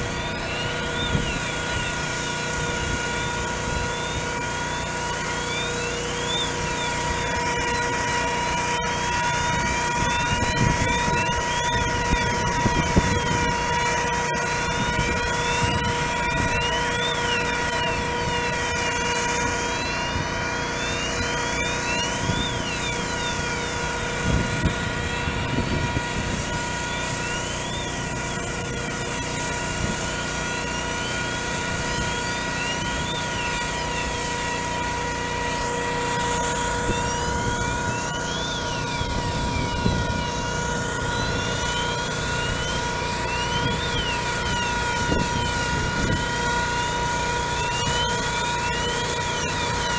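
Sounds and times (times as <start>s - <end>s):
rising and falling chirps: 0.0s - 8.0s, 14.5s - 24.2s, 26.4s - 28.5s, 36.0s - 45.6s
ventilation fan whining: 0.0s - 49.9s.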